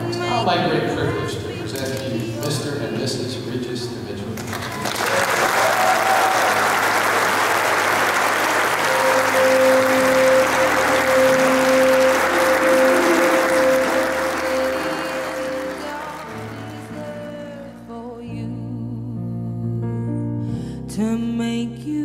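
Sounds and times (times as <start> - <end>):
congregation applauding: 4.4 - 17.7
music in long held notes: 6.5 - 20.0.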